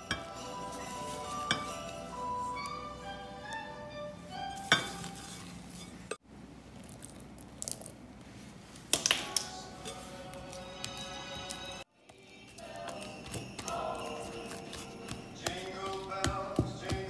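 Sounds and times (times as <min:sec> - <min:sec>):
spatula clinking against glass: 0:00.0 - 0:02.8, 0:12.5 - 0:17.0
spatula scraping icing in bowl: 0:12.5 - 0:17.0.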